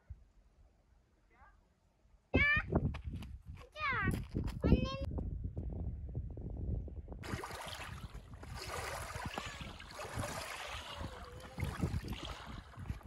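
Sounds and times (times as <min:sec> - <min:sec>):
waves lapping on pebbles: 0:07.2 - 0:13.0.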